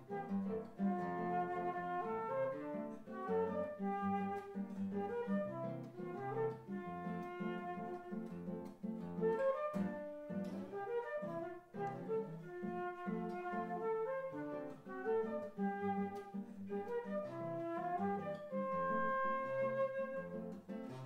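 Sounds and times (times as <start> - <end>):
flute melody: 0.0 - 21.0
plucked classical guitar: 0.0 - 21.0.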